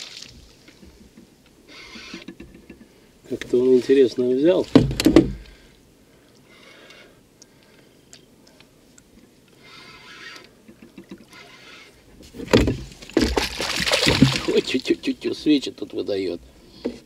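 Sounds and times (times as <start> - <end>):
water splashing: 0.0 - 0.8, 12.3 - 15.4
fish splashing: 12.7 - 15.1.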